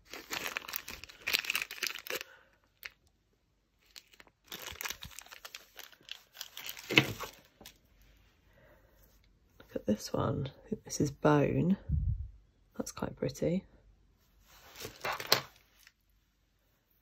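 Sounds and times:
plastic bags crinkling: 0.0 - 3.1, 3.8 - 7.8, 14.6 - 16.0.

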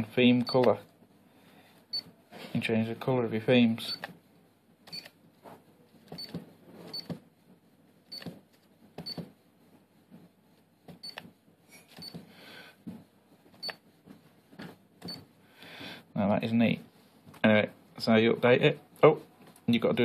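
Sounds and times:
touchscreen key-press beeps: 4.9 - 5.1, 11.0 - 11.2, 13.6 - 13.8.

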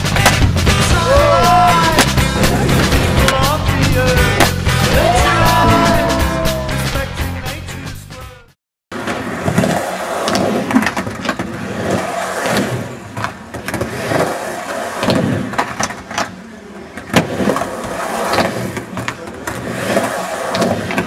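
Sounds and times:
skateboard wheels rolling on pavement: 0.0 - 6.7, 8.9 - 21.0
skateboard clacking: 9.0 - 21.0.

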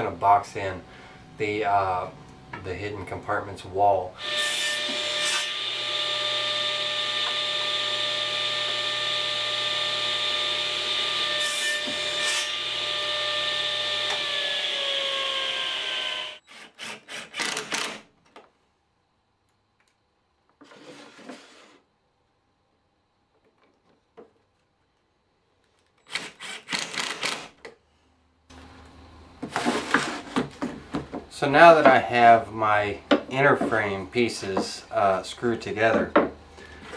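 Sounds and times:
table saw cutting wood: 4.2 - 17.5
impact driver whirring: 26.0 - 27.6
wooden knocks: 29.4 - 32.0, 34.4 - 34.8, 35.8 - 36.4.

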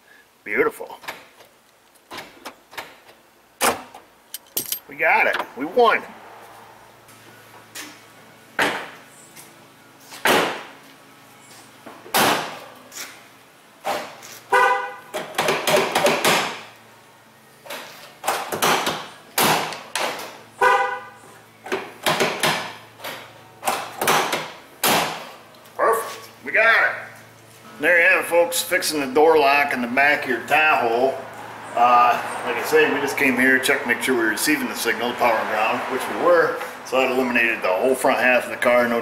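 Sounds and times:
car horn chirps: 14.5 - 15.1, 20.6 - 21.3.

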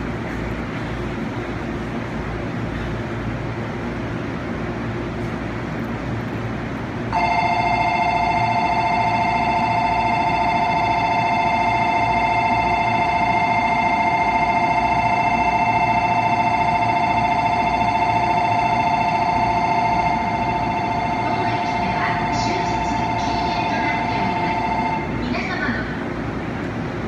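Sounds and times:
electronic two-tone warbling bell: 7.2 - 25.1.

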